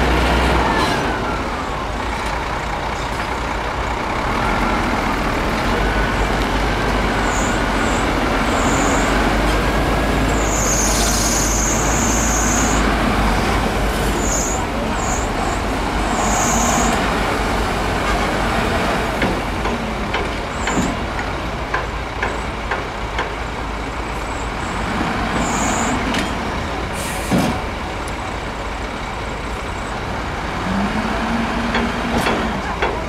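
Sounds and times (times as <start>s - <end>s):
diesel machinery running: 0.0s - 33.0s.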